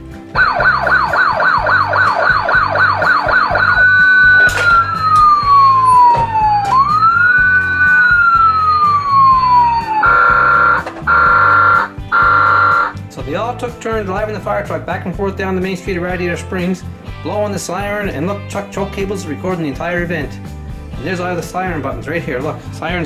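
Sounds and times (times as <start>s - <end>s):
toy fire truck siren: 0.4s - 13.0s.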